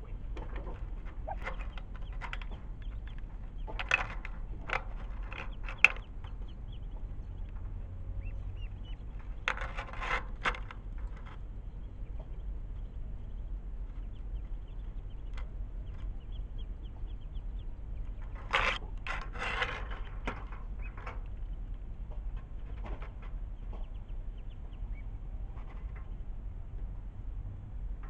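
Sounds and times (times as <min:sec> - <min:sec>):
ducklings calling: 0:00.0 - 0:09.8, 0:11.1 - 0:19.0, 0:19.9 - 0:21.7, 0:23.5 - 0:25.6.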